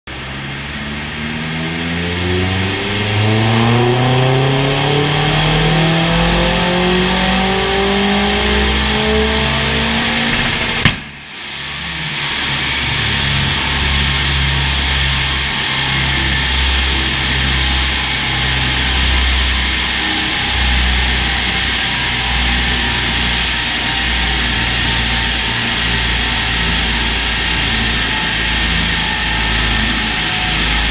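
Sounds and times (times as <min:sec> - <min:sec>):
car engine revving at full throttle: 0:00.1 - 0:30.9
sharp exhaust crack: 0:04.8 - 0:11.8.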